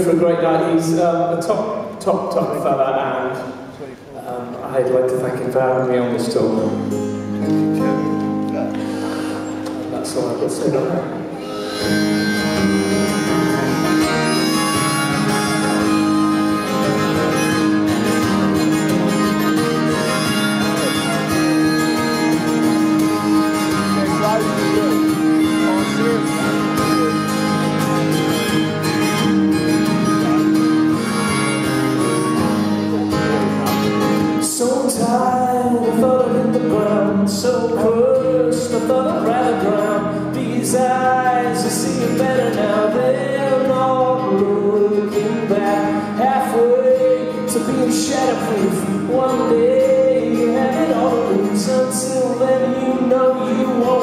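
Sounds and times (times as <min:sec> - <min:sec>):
acoustic guitar over pa: 0:00.0 - 0:54.0
man singing: 0:34.3 - 0:54.0.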